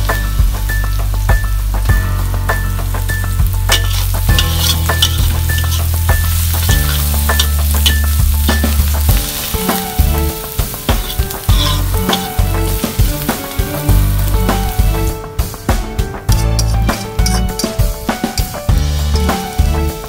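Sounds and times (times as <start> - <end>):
background music with bass: 0.0 - 20.0
onion and garlic sizzling in oil: 0.0 - 20.0
metal spoon scraping a wok: 3.7 - 13.8, 16.3 - 19.6.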